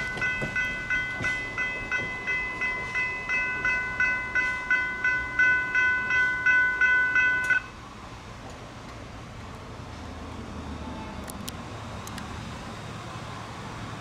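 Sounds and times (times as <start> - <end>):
railroad crossing bells ringing: 0.0 - 7.9.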